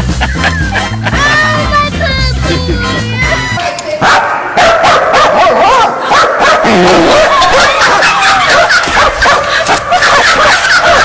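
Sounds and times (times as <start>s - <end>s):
dog barking and whining: 4.0s - 11.0s.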